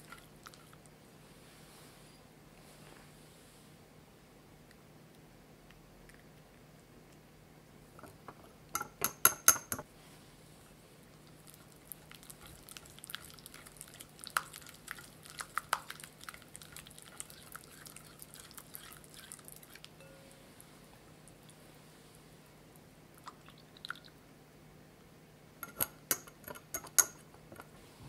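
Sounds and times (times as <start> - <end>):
whisk clinking against glass bowl: 8.8 - 9.8
whisk beating thick mixture: 12.3 - 19.9.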